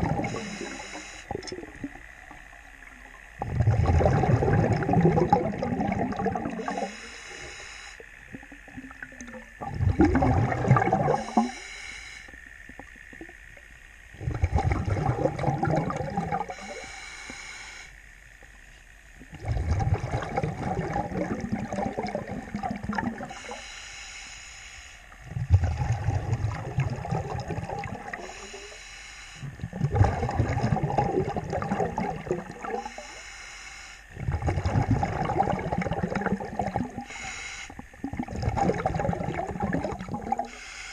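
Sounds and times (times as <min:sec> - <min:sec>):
exhaled bubbles underwater: 0:00.0 - 0:11.6, 0:12.2 - 0:16.9, 0:19.1 - 0:23.6, 0:25.1 - 0:28.8, 0:29.4 - 0:33.2, 0:34.1 - 0:40.6
regulator inhalation hiss: 0:00.2 - 0:01.4, 0:06.6 - 0:08.0, 0:11.1 - 0:12.5, 0:16.5 - 0:18.0, 0:23.3 - 0:25.2, 0:28.2 - 0:29.6, 0:32.8 - 0:34.1, 0:37.0 - 0:37.8, 0:40.4 - 0:40.9.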